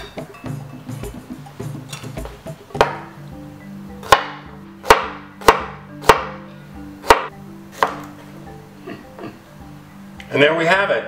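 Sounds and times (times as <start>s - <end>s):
soft background music: 0.0s - 11.0s
knife chopping on wooden board: 2.8s - 3.1s, 4.0s - 6.4s, 7.0s - 8.2s.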